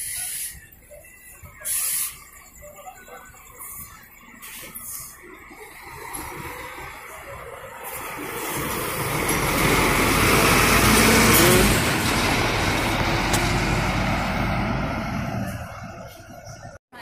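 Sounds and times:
tyre and road noise: 0:00.0 - 0:17.0
bus engine driving past: 0:01.2 - 0:16.8.

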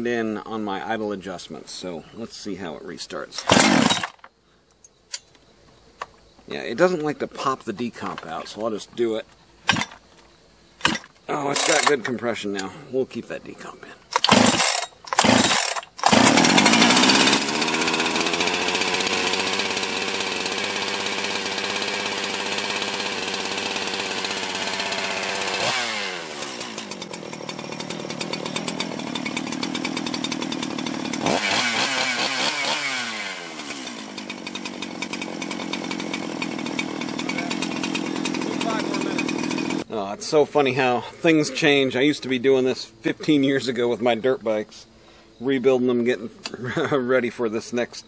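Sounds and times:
chainsaw engine running: 0:03.4 - 0:04.4, 0:09.7 - 0:10.0, 0:10.8 - 0:12.7, 0:14.1 - 0:39.9, 0:46.6 - 0:47.0.

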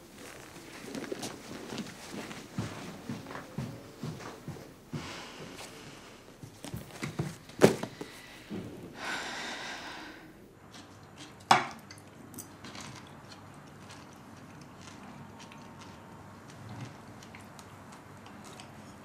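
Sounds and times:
breathy sigh: 0:08.0 - 0:10.4.

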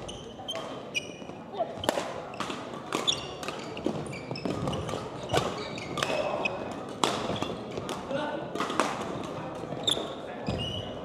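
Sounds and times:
shoes squeaking on gym floor: 0:00.0 - 0:07.8, 0:09.7 - 0:11.0
rackets striking shuttlecock: 0:00.5 - 0:09.7.

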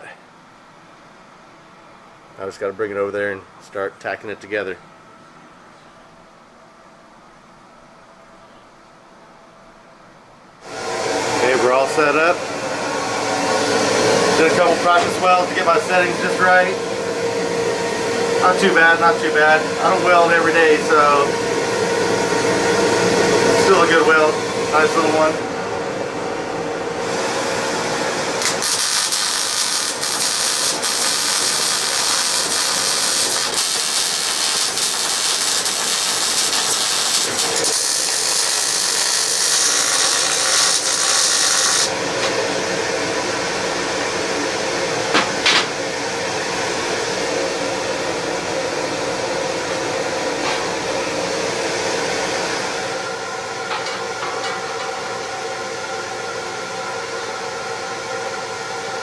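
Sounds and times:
steady mechanical hum: 0:00.0 - 0:59.0
welding arc crackling and hissing: 0:28.0 - 0:42.0.

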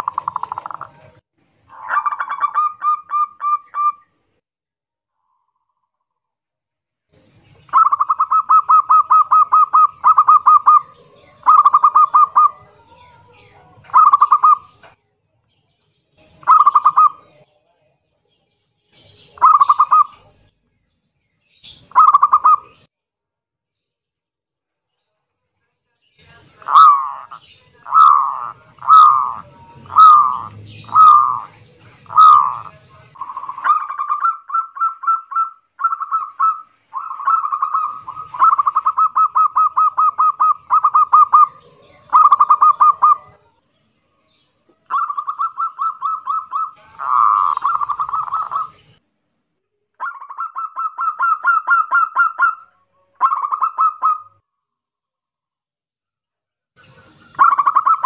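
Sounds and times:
dove cooing: 0:00.0 - 0:04.0, 0:07.7 - 0:12.7, 0:13.8 - 0:14.8, 0:16.4 - 0:17.2, 0:19.4 - 0:20.4, 0:21.9 - 0:22.8, 0:26.6 - 0:43.4, 0:44.8 - 0:48.9, 0:50.0 - 0:52.6, 0:53.2 - 0:54.3, 0:57.3 - 0:58.0.

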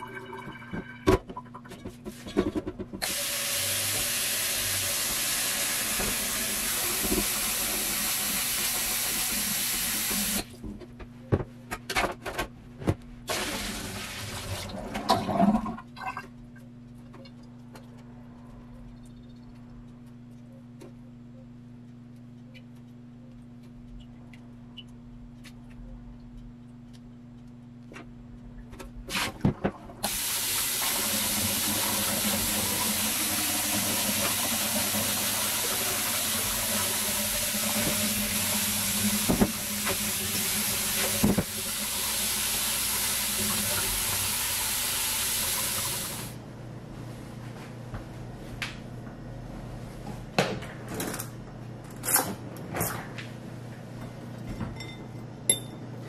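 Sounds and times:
tap water running into sink: 0:03.0 - 0:10.4, 0:30.0 - 0:46.3.

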